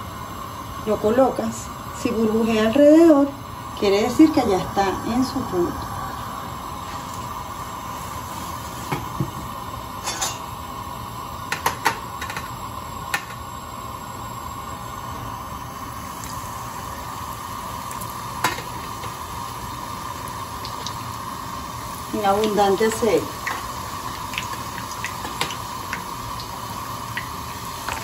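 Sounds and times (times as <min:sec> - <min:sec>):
steady background hum: 0:00.0 - 0:28.0.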